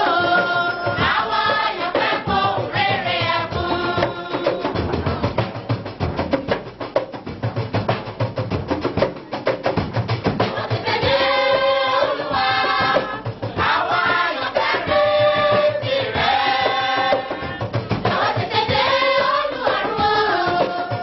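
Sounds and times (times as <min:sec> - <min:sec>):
choir singing in harmony: 0:00.0 - 0:05.6, 0:10.4 - 0:21.0
drums and percussion: 0:00.0 - 0:21.0.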